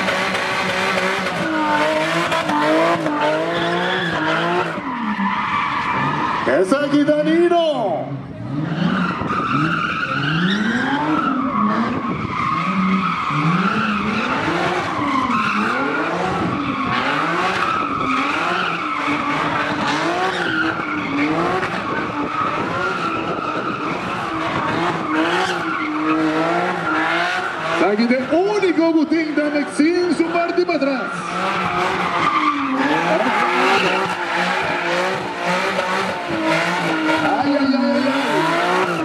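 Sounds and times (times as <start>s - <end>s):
car engine revving: 0.0s - 39.0s
tyres squealing: 25.0s - 39.0s.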